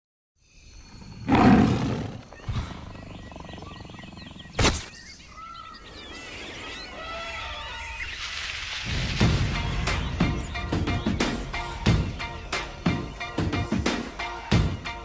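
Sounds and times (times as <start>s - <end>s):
birds chirping: 0.4s - 15.0s
tiger roar: 1.0s - 4.6s.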